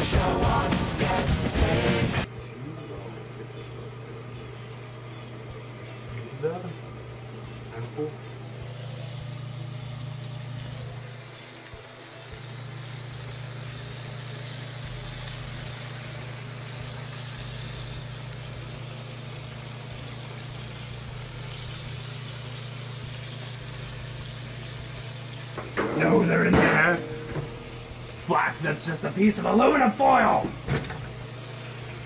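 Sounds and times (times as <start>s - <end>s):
fish and onion sizzling in oil: 6.9s - 28.3s, 29.3s - 32.0s
steady low hum: 14.8s - 32.0s.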